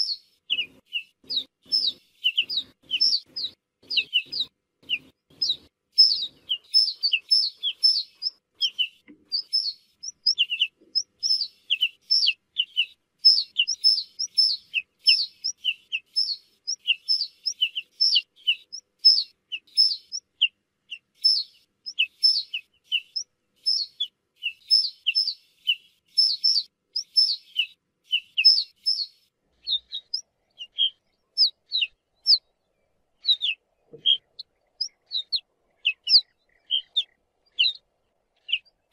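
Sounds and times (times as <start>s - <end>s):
buntings calling: 0.0s - 25.4s, 33.2s - 37.8s.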